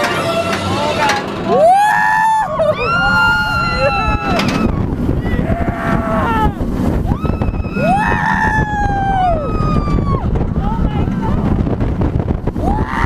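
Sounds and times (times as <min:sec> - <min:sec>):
riders whooping and screaming: 0:01.5 - 0:10.6, 0:12.5 - 0:13.0
wind rumble on microphone: 0:01.5 - 0:13.0.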